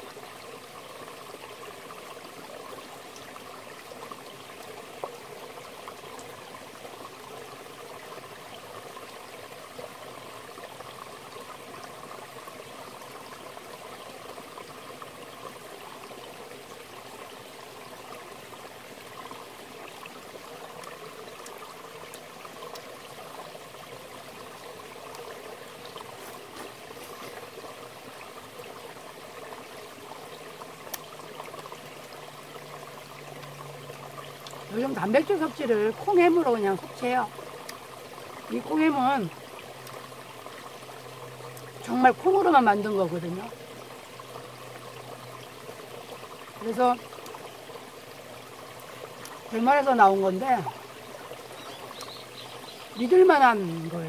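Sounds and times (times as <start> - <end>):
stream flowing over rocks: 0.0 - 54.0.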